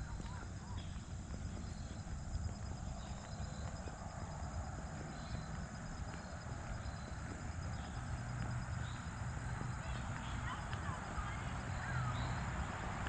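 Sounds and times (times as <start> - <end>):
bird chirps: 0.0 - 2.2, 2.8 - 3.9, 5.0 - 8.0, 11.2 - 12.5
high insect trill: 0.0 - 12.8
low steady rumble: 0.0 - 13.0.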